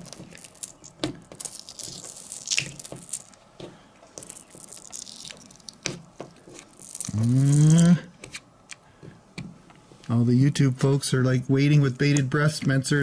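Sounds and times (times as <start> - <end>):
person saying ooh: 7.1 - 8.1.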